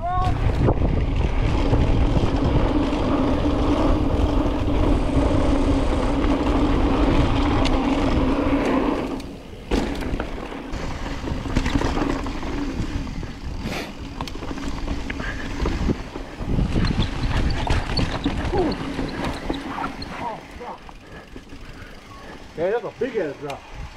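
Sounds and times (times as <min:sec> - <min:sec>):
wind on microphone: 0:00.0 - 0:08.6, 0:15.2 - 0:19.6
bike rattles and clicks: 0:00.0 - 0:23.9
tyre rumble: 0:00.2 - 0:20.6.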